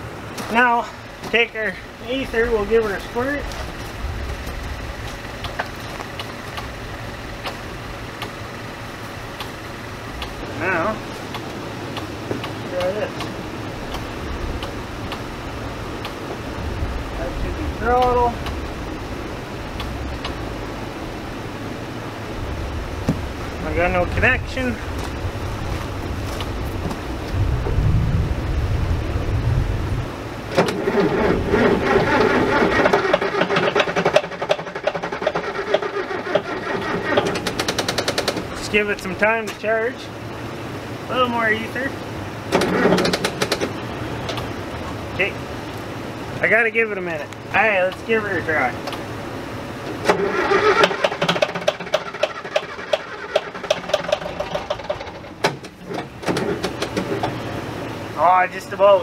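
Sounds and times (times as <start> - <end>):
wind buffeting microphone: 1.1 - 8.2, 12.2 - 33.0
engine starter cranking: 30.5 - 38.6, 42.5 - 44.5, 50.0 - 57.4.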